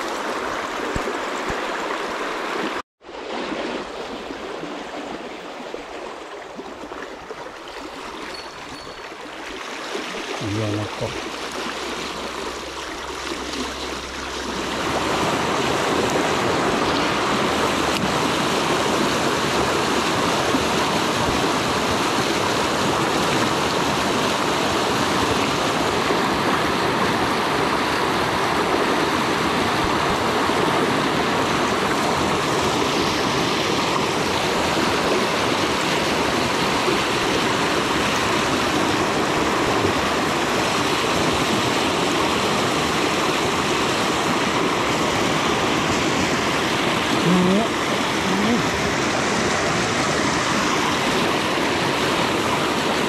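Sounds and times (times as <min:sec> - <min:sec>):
stream rushing over rocks: 0:00.0 - 0:53.0.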